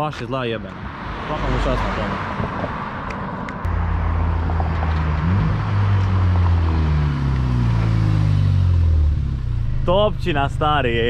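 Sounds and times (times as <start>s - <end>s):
car exhaust drone: 3.6s - 11.0s.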